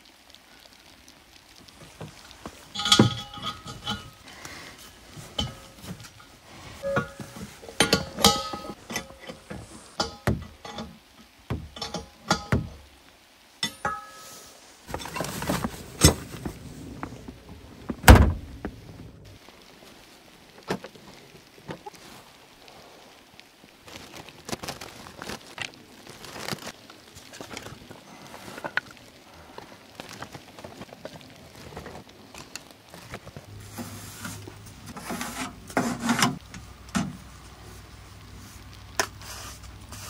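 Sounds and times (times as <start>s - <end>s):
scraping: 1.8s - 10.9s, 13.6s - 19.3s, 33.2s - 36.6s
irregular knocks and thuds: 11.5s - 11.8s.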